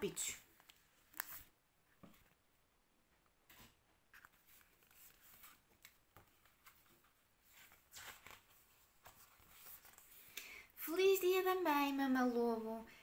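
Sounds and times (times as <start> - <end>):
paper rustling: 0.5 - 2.4, 3.5 - 10.3
book page turning clicks: 0.6 - 1.5.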